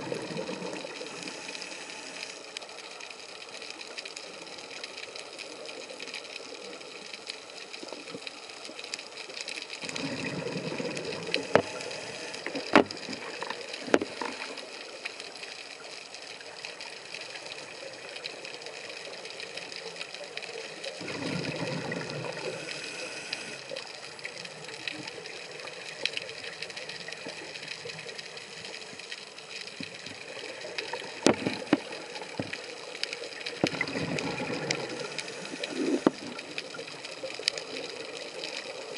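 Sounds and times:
exhaled bubbles underwater: 0.0 - 1.8, 9.8 - 15.0, 16.8 - 28.9, 29.8 - 38.9.

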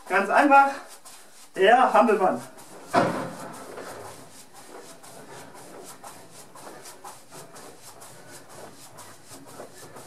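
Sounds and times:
sharp thump: 2.9 - 3.4.

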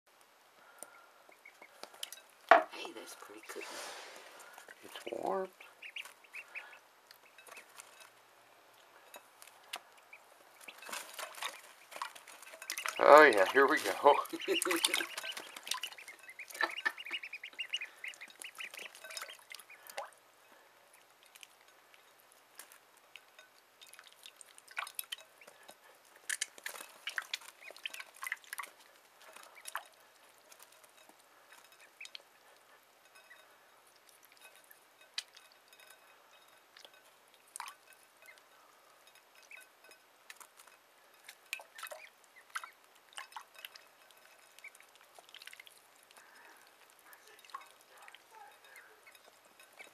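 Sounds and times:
water splashes and drips: 0.6 - 49.9
ducklings peeping: 0.8 - 2.2, 2.9 - 7.9, 9.4 - 20.1, 23.9 - 29.8, 31.6 - 35.4, 39.4 - 43.7, 44.4 - 49.9.

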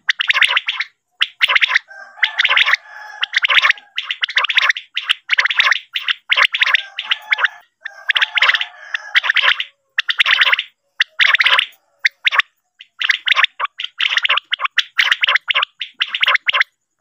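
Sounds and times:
quail calling in rattling bursts: 0.0 - 16.7.

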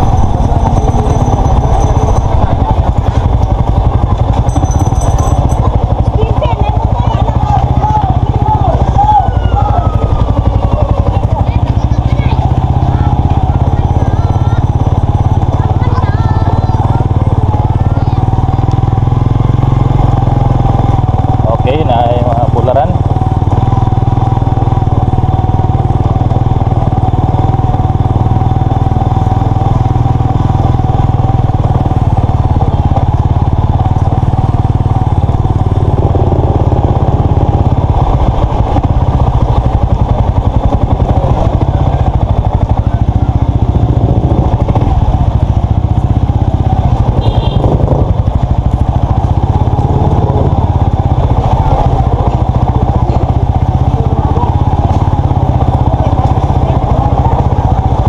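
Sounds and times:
motorcycle engine rumbling: 0.0 - 58.0.

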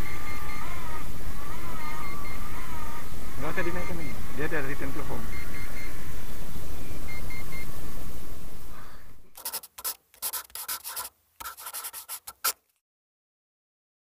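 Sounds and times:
scratching and rubbing sounds: 9.4 - 12.8.

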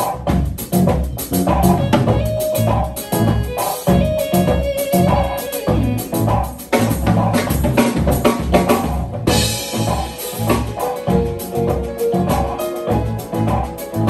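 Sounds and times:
drums and cymbals: 0.0 - 14.0
jazz trio playing: 0.0 - 14.0
pulsing bass line: 0.0 - 14.0.

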